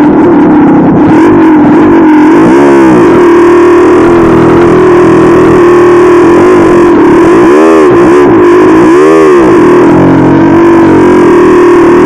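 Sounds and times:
dirt bike engine running: 0.0s - 12.0s.

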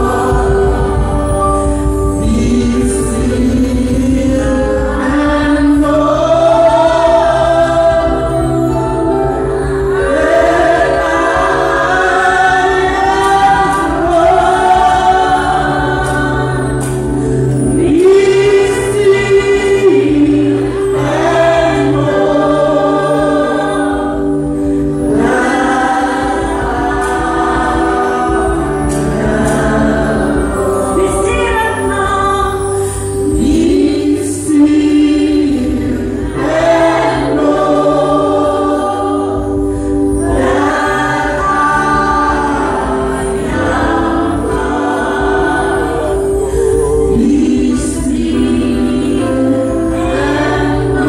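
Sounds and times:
choir voices: 0.0s - 51.0s
held accompaniment chords: 0.0s - 51.0s
woman singing through microphone: 0.0s - 51.0s.

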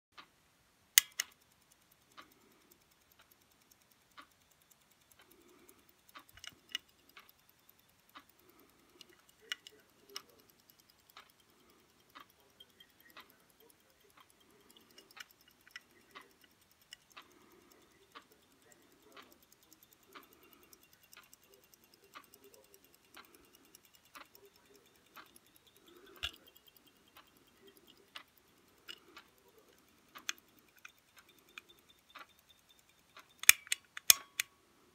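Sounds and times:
stopwatch ticking: 0.2s - 34.9s
stopwatch clicks: 1.0s - 34.6s.

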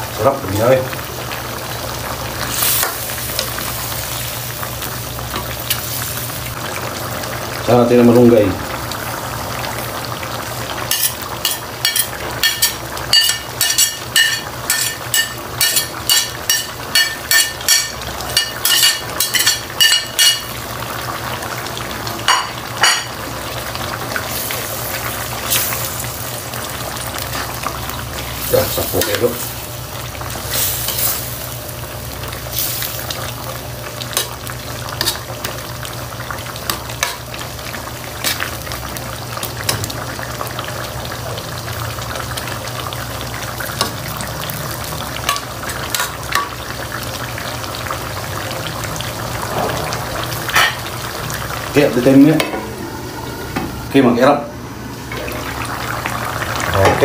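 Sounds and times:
stew simmering and sizzling: 0.0s - 57.0s
ladle stirring and scraping pan: 10.9s - 20.4s.

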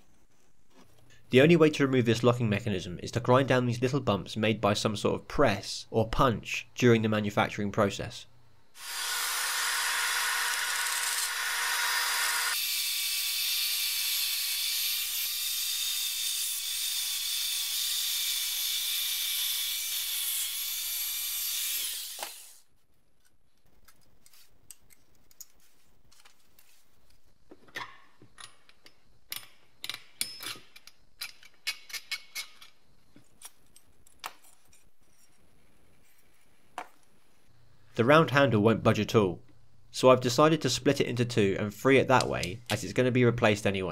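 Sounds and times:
power grinder grinding metal: 8.8s - 22.6s.

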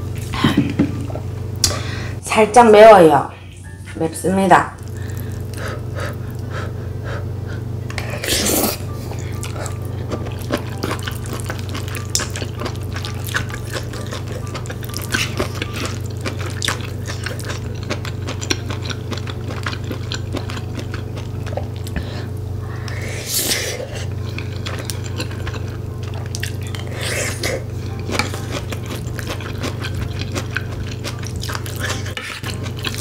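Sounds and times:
wet chewing and slurping: 4.8s - 6.6s, 7.9s - 33.0s
background music: 8.3s - 16.6s.

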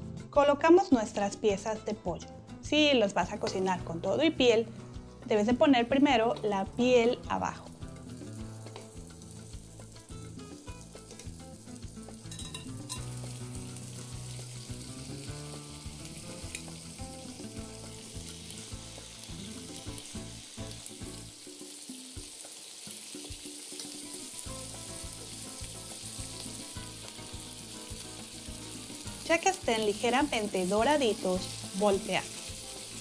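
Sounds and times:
chicken sizzling in hot oil: 3.4s - 33.0s.

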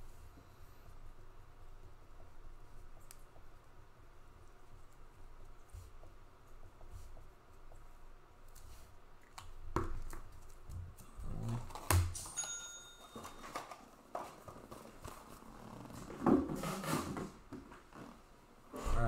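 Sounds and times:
high ringing ding: 12.2s - 13.6s.

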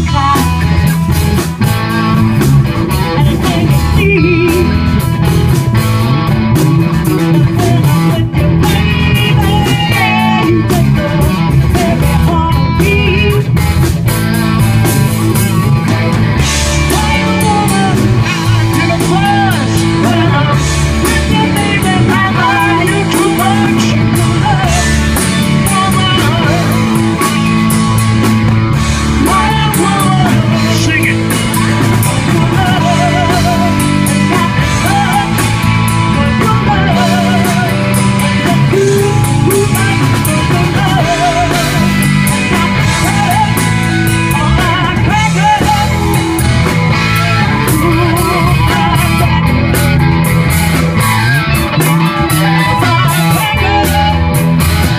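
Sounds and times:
woman singing with vibrato: 0.0s - 0.7s, 3.0s - 4.9s, 7.2s - 13.6s, 16.7s - 27.4s, 29.2s - 46.4s, 47.0s - 49.4s, 51.8s - 54.4s
bass guitar: 0.0s - 54.9s
drum kit: 0.0s - 54.9s
electric guitars: 0.0s - 54.9s.

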